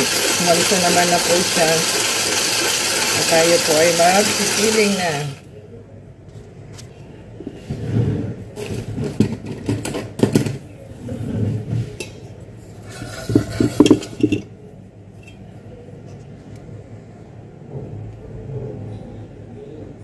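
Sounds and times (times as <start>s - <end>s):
metal bowl and utensils clinking: 12.9s - 14.5s.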